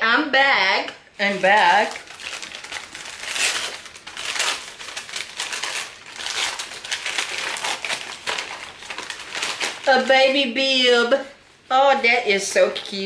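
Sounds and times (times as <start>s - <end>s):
tissue paper crinkling: 1.2s - 10.8s.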